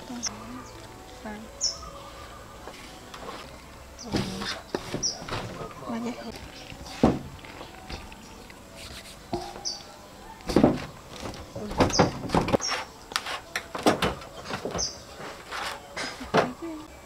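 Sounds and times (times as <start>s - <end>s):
high bird chirps: 1.5s - 2.5s, 9.4s - 10.0s.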